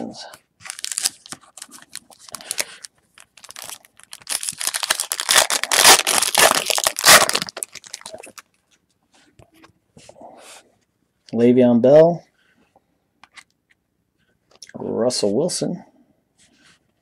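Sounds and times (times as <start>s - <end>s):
foil wrapper crinkling: 0.6s - 8.7s.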